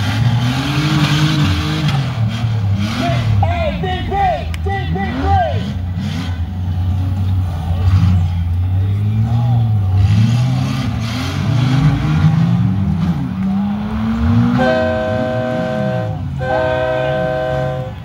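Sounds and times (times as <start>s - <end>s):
car engines revving: 0.0s - 18.0s
horn blasts: 14.5s - 18.0s.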